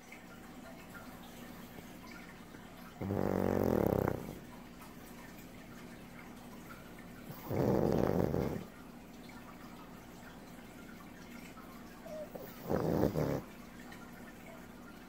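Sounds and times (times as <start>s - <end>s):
dog snoring loudly: 3.0s - 4.5s, 7.2s - 8.7s, 12.0s - 13.5s.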